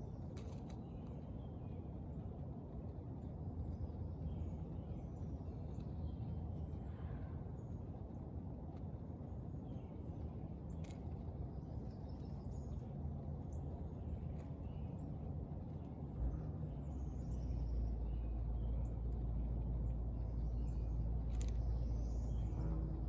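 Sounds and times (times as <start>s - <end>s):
songbird chirps: 9.3s - 23.0s
light clicks: 21.2s - 22.1s.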